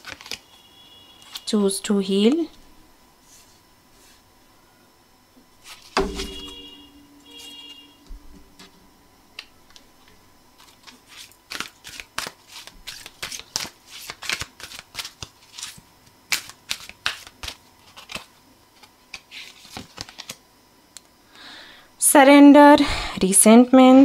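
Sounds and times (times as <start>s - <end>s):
cards being shuffled: 0.0s - 0.4s, 10.6s - 20.4s.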